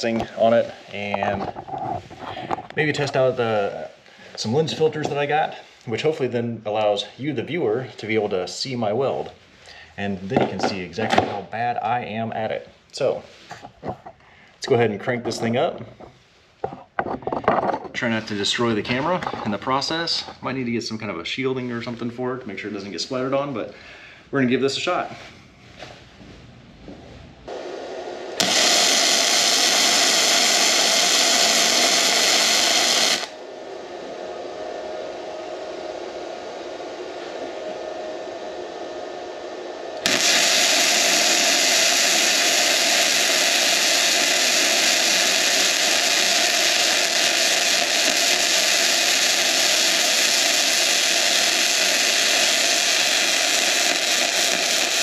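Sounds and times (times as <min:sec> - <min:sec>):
welding arc crackling and hissing: 0:00.0 - 0:09.4, 0:27.5 - 0:33.4, 0:39.9 - 0:55.0.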